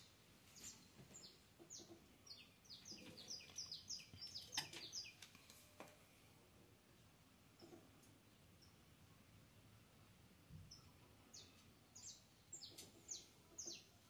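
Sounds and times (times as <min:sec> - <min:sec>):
bird chirping: 0:00.0 - 0:05.4, 0:07.6 - 0:08.9, 0:10.6 - 0:14.0.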